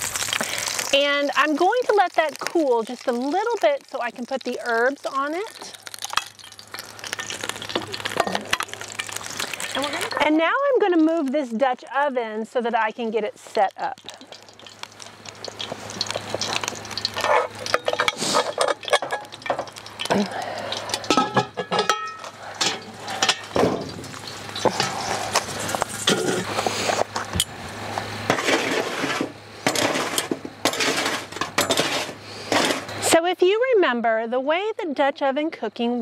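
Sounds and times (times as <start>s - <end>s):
metal tongs scraping charcoal: 0.0s - 33.2s
cast iron pot clanking on bail: 5.5s - 10.3s, 14.0s - 26.5s, 28.3s - 32.9s.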